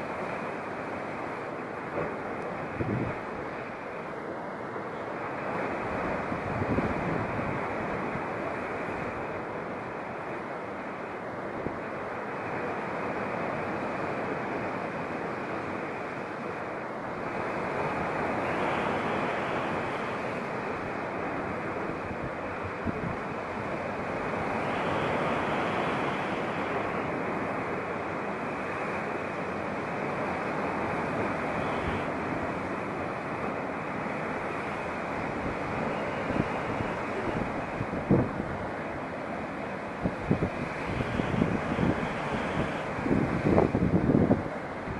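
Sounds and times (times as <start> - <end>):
sea waves breaking on rocks: 17.2 - 44.9.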